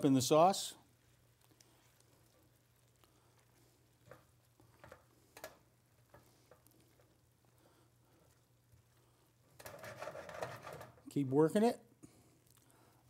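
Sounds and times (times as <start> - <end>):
spatula scraping a metal pan: 9.6 - 11.0.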